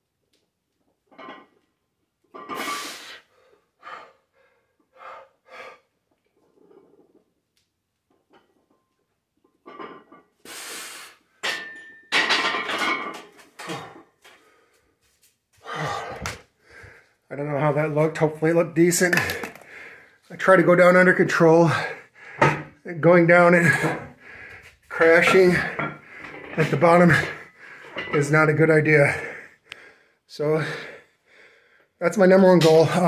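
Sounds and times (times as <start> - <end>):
person breathing hard: 15.6 - 17.2, 19.3 - 20.2, 21.7 - 22.7, 23.8 - 24.8, 29.1 - 32.0.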